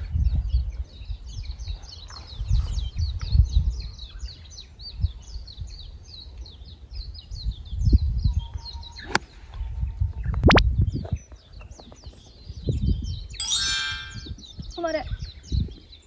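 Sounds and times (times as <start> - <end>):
songbirds chirping: 0.0 - 16.0
wind buffeting microphone: 0.0 - 16.0.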